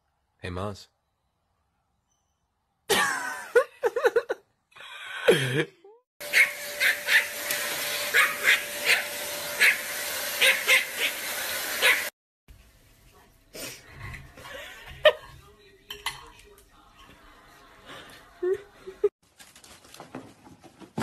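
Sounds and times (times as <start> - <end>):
small dog yapping: 6.3 - 7.4, 8.1 - 9.8, 10.4 - 12.1.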